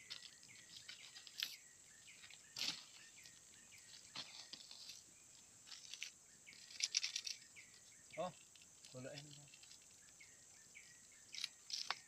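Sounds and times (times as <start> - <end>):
birds chirping: 0.0 - 12.0
insect drone: 0.0 - 12.0.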